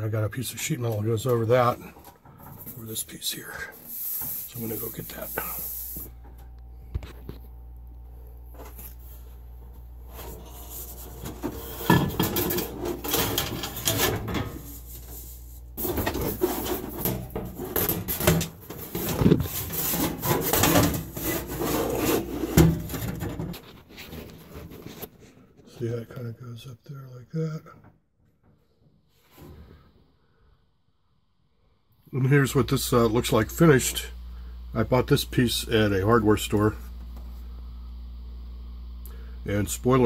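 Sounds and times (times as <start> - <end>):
low steady hum: 0.0 - 27.8, 31.0 - 40.0
sheet metal scraping on pipe: 10.1 - 23.7.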